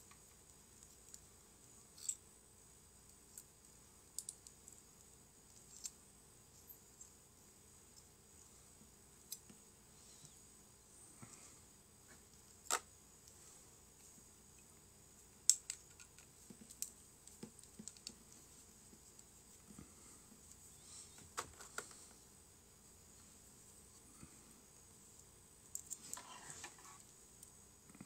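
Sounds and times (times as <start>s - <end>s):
steady high hiss: 0.0s - 28.0s
faint clicks and taps: 15.5s - 20.6s.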